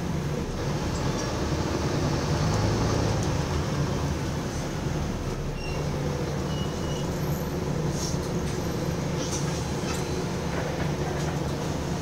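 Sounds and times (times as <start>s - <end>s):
bus engine drone: 0.0s - 12.0s
road and body rumble: 0.0s - 12.0s.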